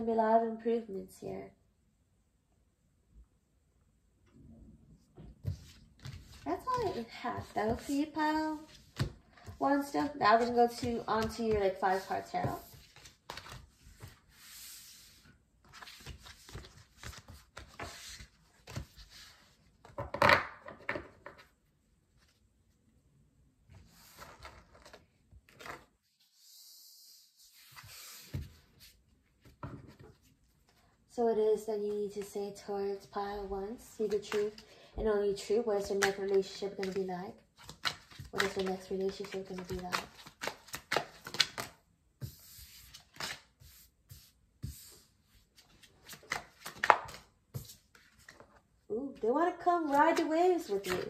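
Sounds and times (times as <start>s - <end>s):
cards shuffling on a desk: 5.4s - 21.5s, 27.6s - 30.4s, 35.8s - 48.6s, 49.9s - 51.0s
cards clicking and slapping: 37.6s - 41.8s, 46.0s - 48.4s.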